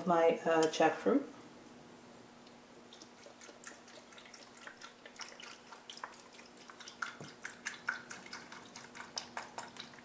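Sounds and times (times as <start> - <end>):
broth trickling into a pot: 2.8 - 10.0.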